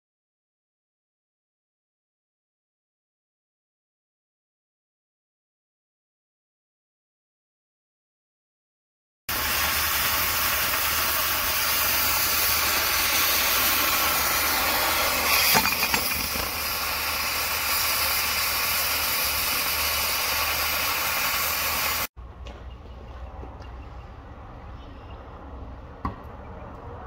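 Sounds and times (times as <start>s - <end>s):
cutting torch hissing: 9.3s - 22.1s.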